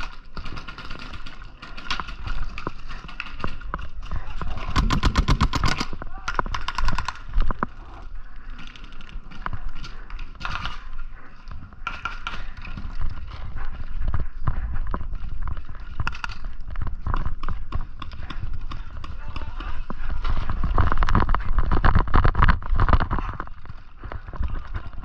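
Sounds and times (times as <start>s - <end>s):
gear jostling: 0.0s - 25.0s.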